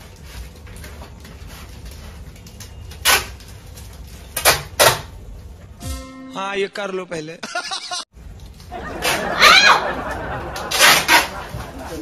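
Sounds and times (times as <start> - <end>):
adhesive tape ripping off roll: 0.0 - 5.2, 8.5 - 9.2, 10.6 - 11.4.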